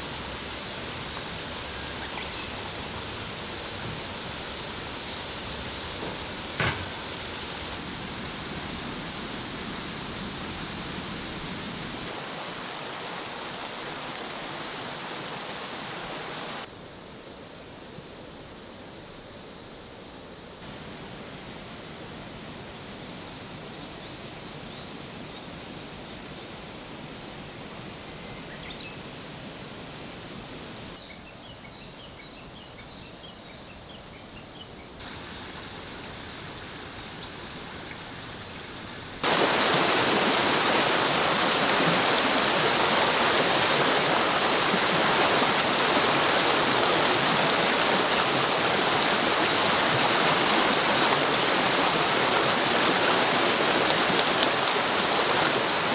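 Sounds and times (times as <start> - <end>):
mountain stream rushing over rocks: 0.0 - 16.7, 35.0 - 55.9.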